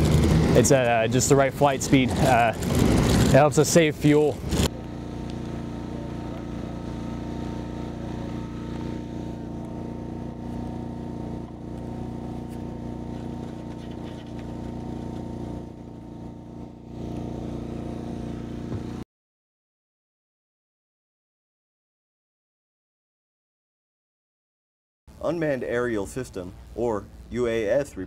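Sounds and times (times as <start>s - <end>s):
engine droning steadily: 0.0s - 19.0s.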